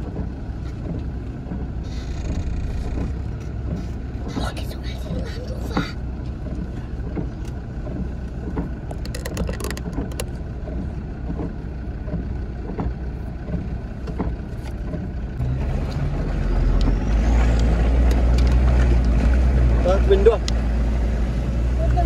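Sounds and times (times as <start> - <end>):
engine drone inside cabin: 0.0 - 22.0
knocks and rattles: 6.4 - 15.1.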